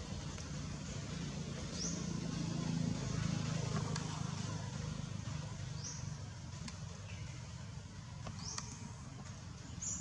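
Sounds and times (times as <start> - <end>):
engine running hum: 0.0 - 10.0.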